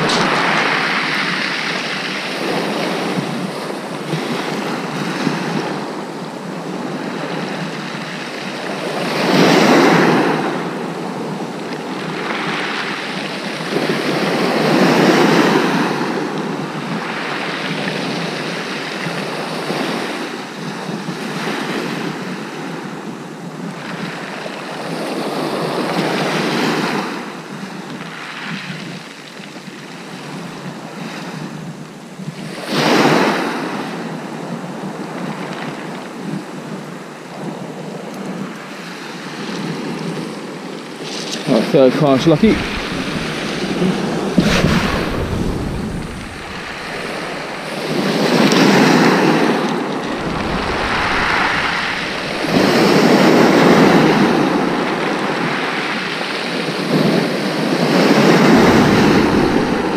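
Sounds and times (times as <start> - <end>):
wind on microphone: 0.0 - 5.9, 42.0 - 59.9
waves breaking on shingle beach: 0.0 - 20.6, 38.8 - 59.9.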